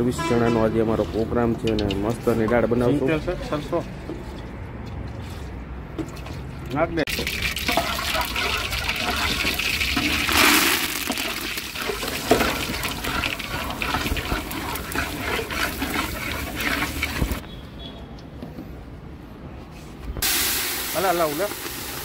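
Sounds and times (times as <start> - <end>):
water gushing and splashing: 7.1 - 17.4.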